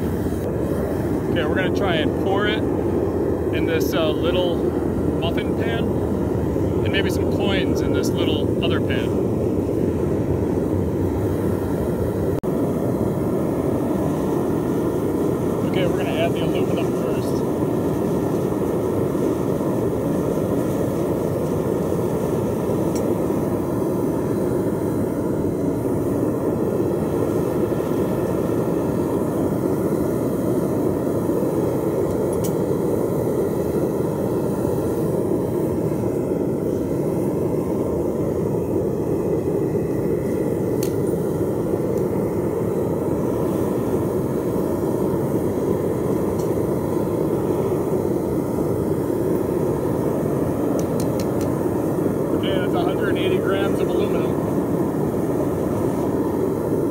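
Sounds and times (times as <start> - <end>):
burner flame roaring: 0.0 - 56.9.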